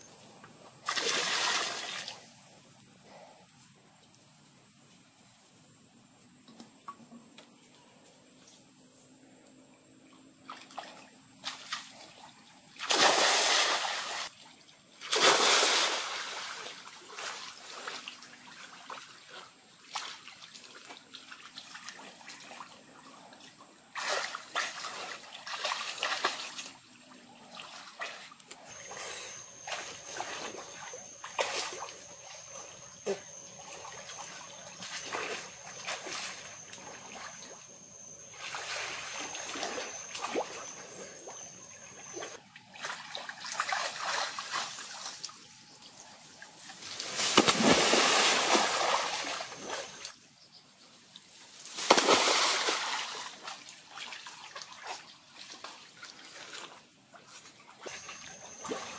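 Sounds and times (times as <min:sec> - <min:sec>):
insect drone: 0:00.0 - 0:58.9
water splashing and sloshing: 0:00.6 - 0:02.3, 0:10.4 - 0:50.2, 0:51.3 - 0:58.9
people jumping into pool: 0:47.0 - 0:50.0.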